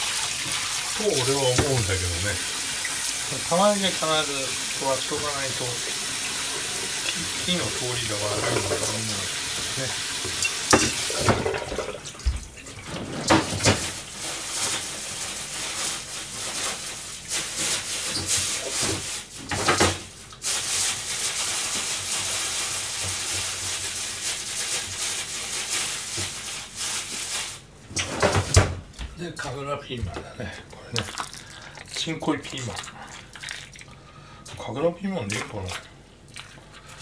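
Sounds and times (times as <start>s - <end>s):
food sizzling in a frying pan: 0.0s - 11.5s, 13.6s - 27.7s
utensils clattering on pan: 10.3s - 11.9s.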